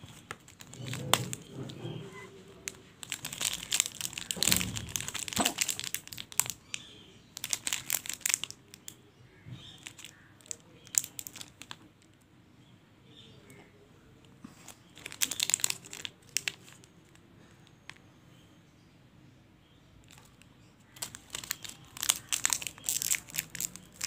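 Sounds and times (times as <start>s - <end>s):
wrappers crinkling: 0.0s - 8.9s, 9.8s - 12.1s, 14.6s - 17.2s, 20.0s - 24.0s.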